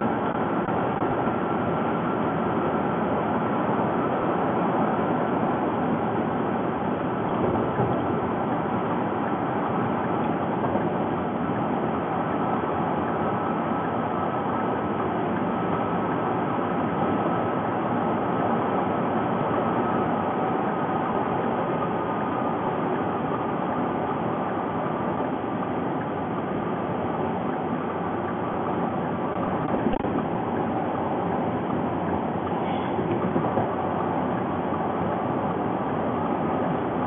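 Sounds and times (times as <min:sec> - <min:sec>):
car road and tyre noise: 0:00.0 - 0:37.0.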